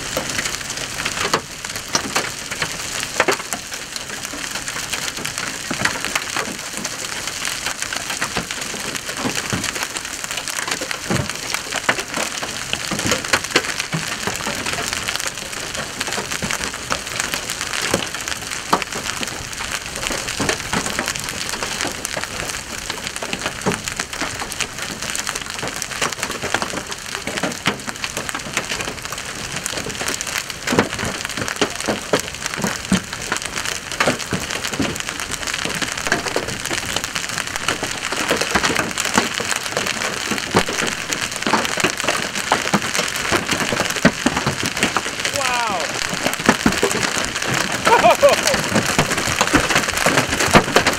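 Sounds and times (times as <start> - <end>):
hailstones knocking: 0.1 - 50.9
heavy rain hissing: 32.6 - 50.9.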